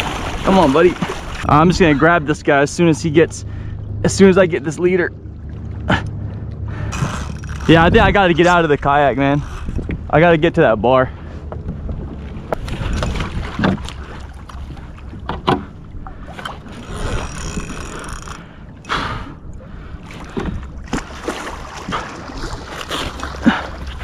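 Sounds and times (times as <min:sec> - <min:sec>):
water splashing against kayak hull: 0:00.0 - 0:10.1, 0:11.2 - 0:24.0
wind rumble on microphone: 0:00.0 - 0:18.5.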